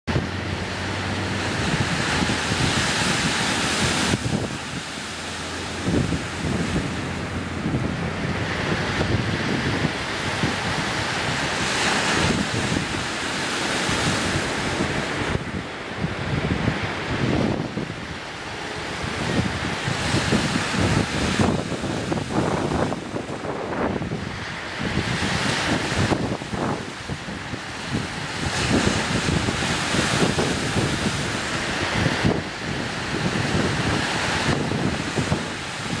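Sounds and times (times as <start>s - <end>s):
sea surf washing on shore: 0.1s - 36.0s
wind buffeting microphone: 0.1s - 36.0s.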